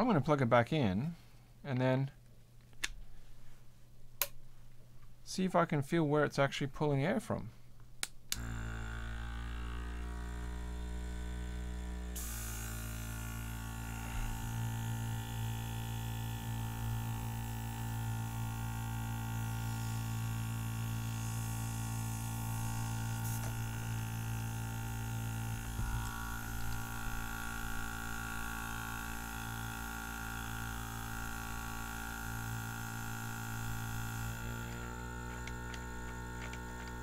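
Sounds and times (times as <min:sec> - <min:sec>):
air compressor humming: 0:08.3 - 0:37.0.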